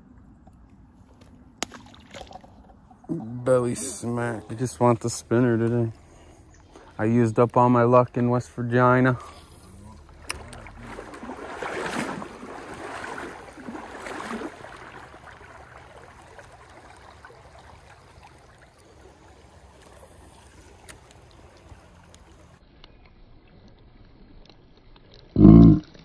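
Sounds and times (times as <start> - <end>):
stream water splashing: 0.9 - 22.6
flowing water rushing: 8.7 - 22.6.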